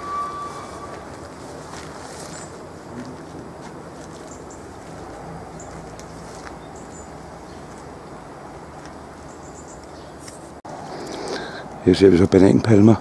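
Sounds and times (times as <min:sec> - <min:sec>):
faint high bird chirps: 0:00.0 - 0:01.1
outdoor background noise: 0:00.0 - 0:13.0.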